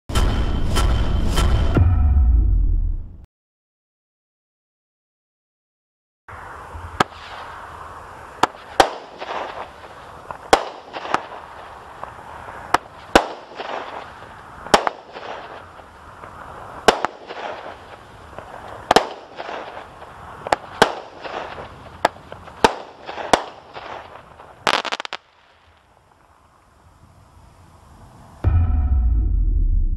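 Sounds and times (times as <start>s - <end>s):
firework crackling hiss: 6.3s - 28.4s
firework cake bangs: 8.4s - 25.2s.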